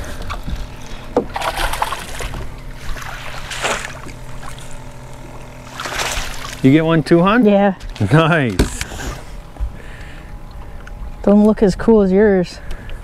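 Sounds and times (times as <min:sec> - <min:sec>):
water washing against boat hull: 0:00.0 - 0:07.0
faint steady hum: 0:00.0 - 0:13.0.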